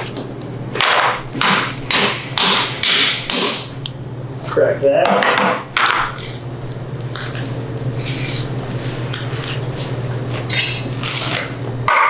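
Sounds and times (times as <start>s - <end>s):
low machine hum: 0.0s - 12.0s
meat tearing and rustling: 6.1s - 11.6s.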